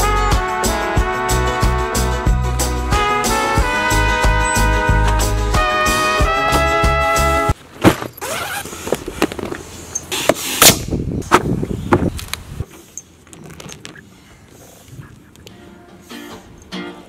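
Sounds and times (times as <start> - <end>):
nylon bag rustling: 7.8 - 9.7.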